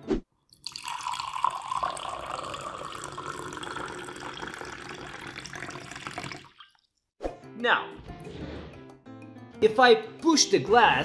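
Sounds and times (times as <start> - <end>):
water pouring into a glass: 0.5 - 6.9.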